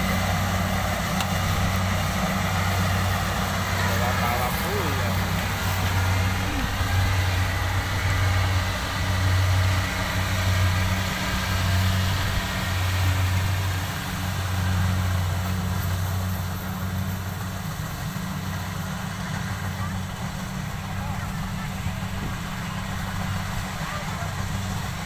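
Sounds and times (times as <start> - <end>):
combine harvester engine drone: 0.0 - 25.0.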